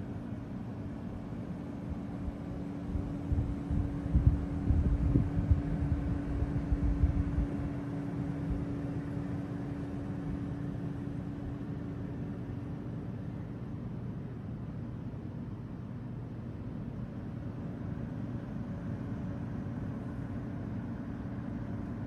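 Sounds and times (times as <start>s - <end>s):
indoor room hum: 0.0s - 22.0s.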